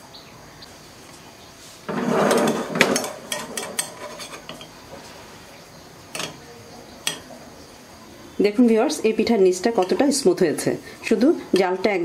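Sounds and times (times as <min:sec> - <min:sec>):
metal spoon scraping pan: 0:01.8 - 0:05.1, 0:09.5 - 0:10.4
metal spoon clinking on pan: 0:02.8 - 0:04.8, 0:06.1 - 0:06.4, 0:07.0 - 0:07.3, 0:09.7 - 0:10.0.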